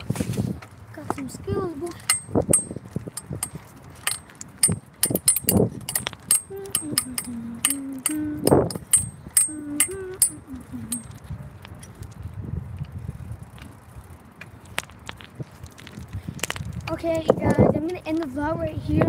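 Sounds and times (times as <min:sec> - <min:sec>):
sharp metallic clicks: 0:02.0 - 0:12.2
boy humming: 0:06.4 - 0:11.1.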